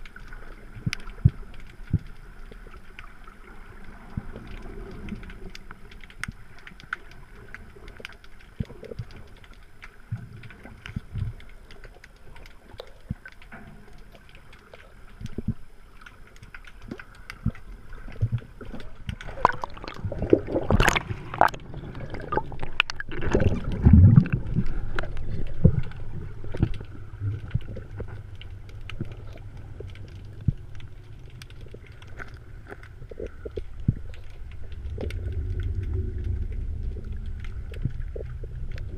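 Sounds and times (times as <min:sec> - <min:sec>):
churning water noise: 0:00.0 - 0:38.9
small underwater clicks: 0:00.0 - 0:38.9
steady low rumble: 0:13.5 - 0:38.9.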